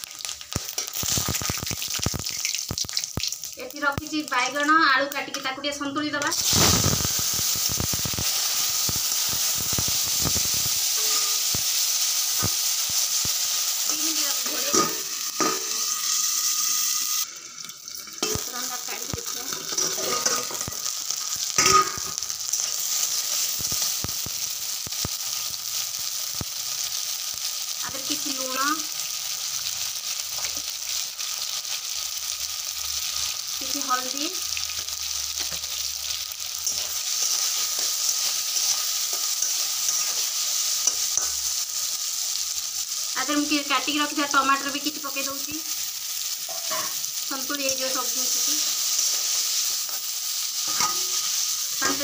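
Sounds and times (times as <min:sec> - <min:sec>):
vegetables sizzling in hot oil: 0:00.0 - 0:52.0
clinks and knocks against pan: 0:21.6 - 0:22.1.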